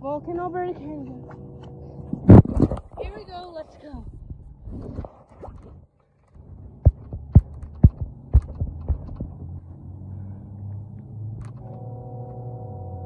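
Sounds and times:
low steady rumble: 0.0 - 5.8, 6.4 - 13.0
dull thudding footsteps: 6.9 - 9.4.

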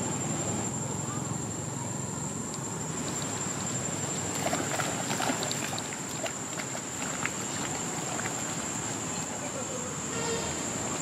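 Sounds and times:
steady high-pitched whine: 0.0 - 11.0
monkeys splashing in water: 3.0 - 9.2.

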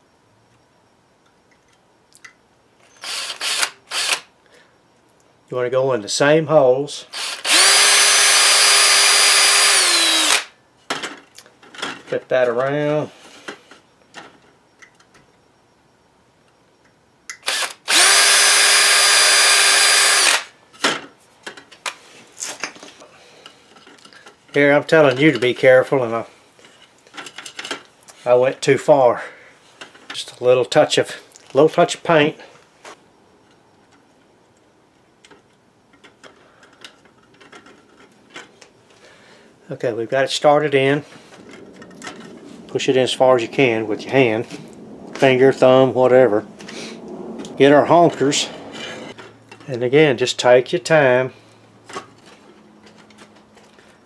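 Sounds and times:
cordless drill whining: 2.9 - 4.3, 7.1 - 10.6, 17.4 - 20.5.

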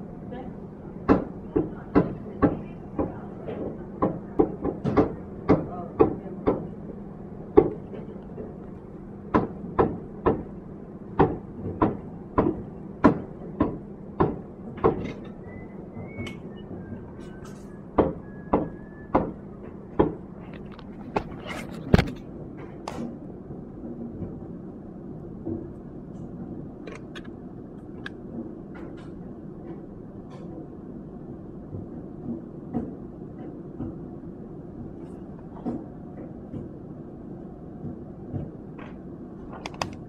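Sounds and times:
steady low hum: 0.0 - 40.0
sharp knocks: 9.3 - 15.4.

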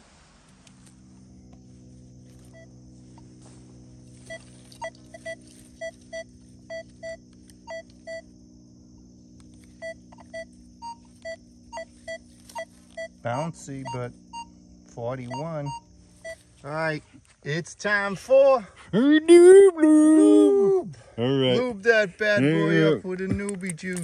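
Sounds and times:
low hum: 0.0 - 17.4
metal detector beeping: 0.6 - 8.4, 9.5 - 16.6.

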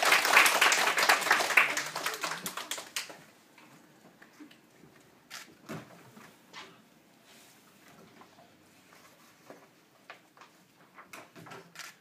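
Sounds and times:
audience clapping: 0.0 - 3.3.

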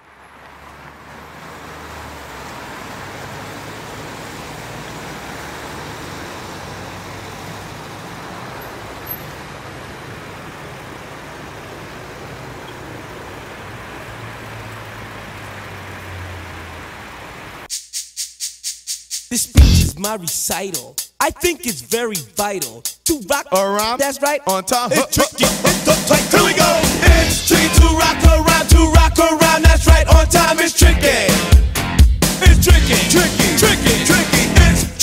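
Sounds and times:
low engine hum: 0.0 - 17.7
street traffic: 0.0 - 17.7, 19.3 - 20.0, 21.1 - 35.0.

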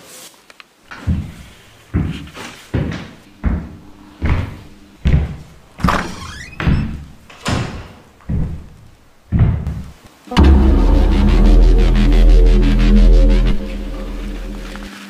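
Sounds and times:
heavy thudding hits: 8.3 - 14.9.

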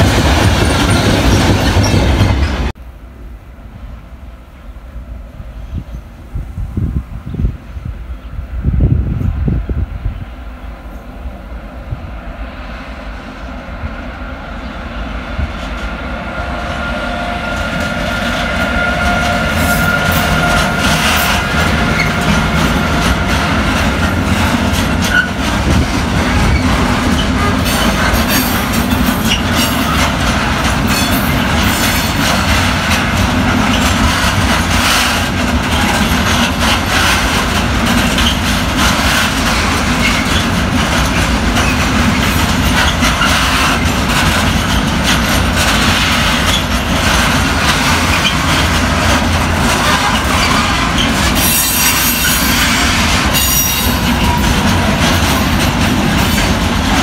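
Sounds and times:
freight train passing: 0.0 - 57.0
wagon wheels clattering over rail joints: 20.0 - 57.0.

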